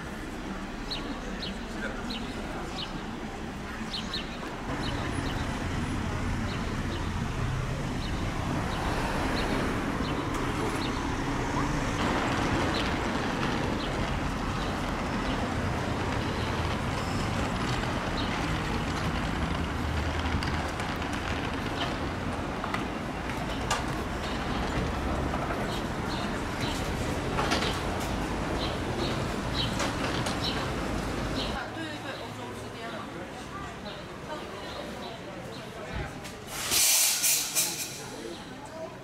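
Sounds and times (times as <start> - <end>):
traffic and vehicle engines: 0.0 - 39.0.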